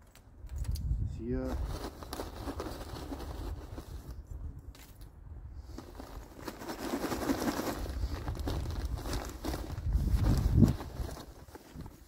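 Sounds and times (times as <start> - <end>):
rustling and scuffing on soil: 5.6 - 12.0.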